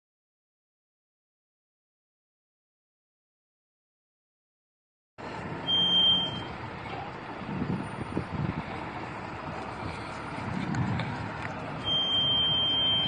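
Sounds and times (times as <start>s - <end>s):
truck engine running: 5.2s - 13.0s
high steady beep: 5.6s - 6.5s, 11.8s - 13.0s.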